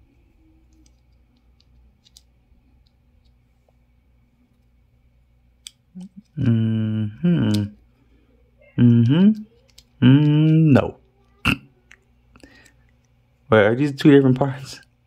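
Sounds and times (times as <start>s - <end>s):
plastic parts clicking: 0.7s - 3.4s, 9.4s - 10.6s
person singing a low note: 6.1s - 7.8s, 8.7s - 9.4s, 10.0s - 10.8s.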